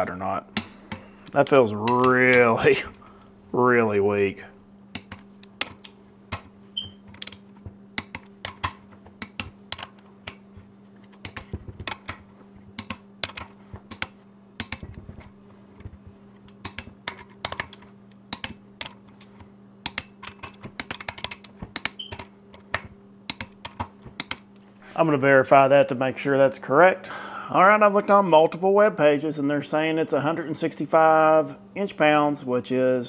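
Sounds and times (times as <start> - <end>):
steady low hum: 0.0 - 33.0
typing on computer keyboard: 12.8 - 14.9, 16.6 - 19.0, 19.9 - 24.4.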